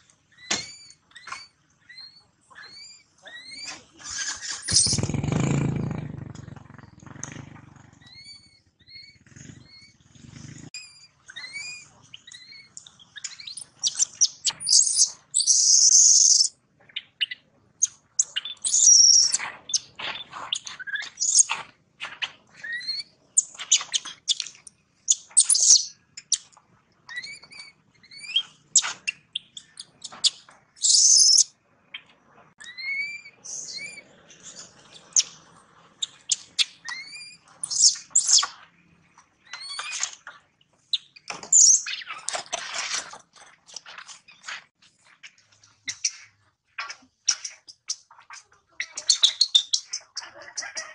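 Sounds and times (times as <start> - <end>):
baby monkey screaming: 0.3 - 6.0, 8.0 - 9.9, 10.8 - 16.5, 27.1 - 31.5, 32.6 - 34.0, 36.0 - 38.5
baby monkey squeaking: 0.3 - 21.6, 22.5 - 26.5, 27.1 - 35.4, 36.0 - 38.6, 39.4 - 42.9, 45.9 - 50.9.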